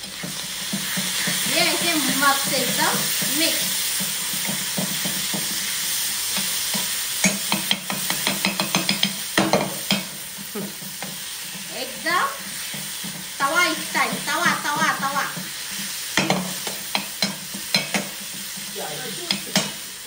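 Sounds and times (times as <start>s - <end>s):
food sizzling in butter: 0.0s - 20.0s
steel spatula scraping and tapping: 6.3s - 10.1s, 14.0s - 18.7s.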